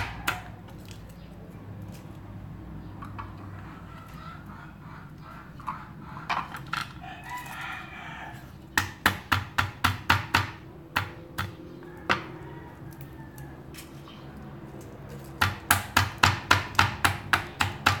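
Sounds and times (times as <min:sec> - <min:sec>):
garlic pounded on wooden board: 0:08.8 - 0:12.3, 0:15.2 - 0:18.0.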